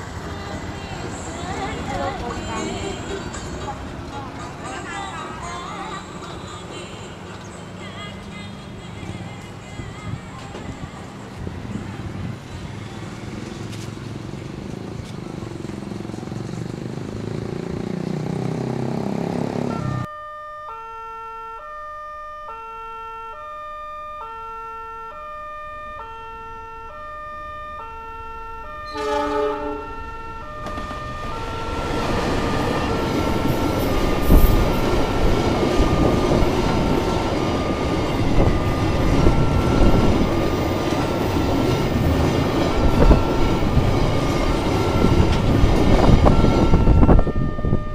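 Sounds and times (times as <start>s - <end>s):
diesel train engine rumbling: 0.0s - 16.6s, 26.5s - 47.9s
two-tone crossing warning chime: 19.7s - 47.9s
train horn blowing: 28.8s - 32.4s
train wheels rolling: 28.9s - 47.1s.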